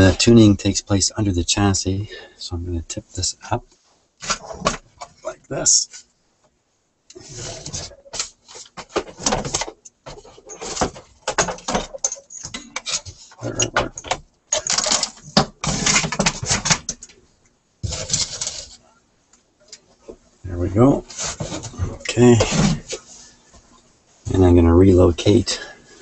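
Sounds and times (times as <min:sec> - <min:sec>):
metal chassis clunks and scrapes: 0:21.1 - 0:23.1.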